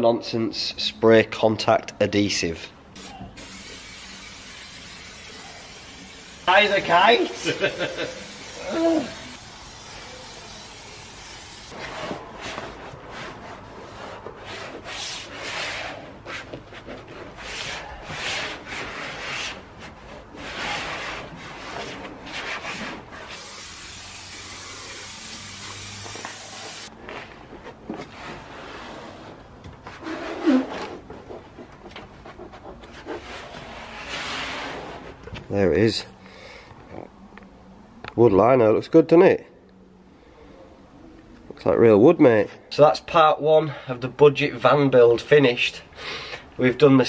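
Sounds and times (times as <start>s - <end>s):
aerosol spray can hiss: 3.4s - 11.7s, 23.3s - 26.9s
hands rubbing lino flooring: 11.7s - 23.4s, 26.1s - 35.3s.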